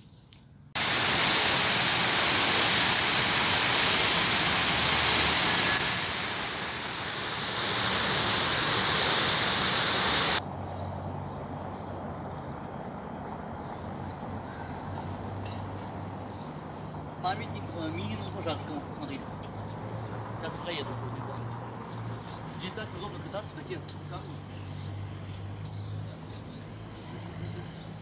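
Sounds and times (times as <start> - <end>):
street ambience with low hum: 0.0 - 28.0
fountain water splashing: 0.8 - 10.4
high squeak: 5.4 - 6.8.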